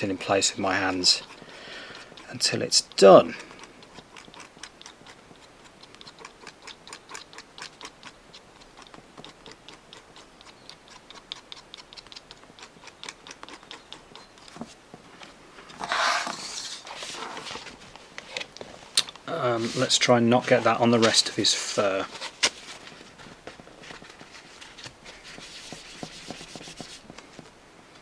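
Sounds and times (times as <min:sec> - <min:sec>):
stick ticking while stirring: 0:00.0 - 0:14.7.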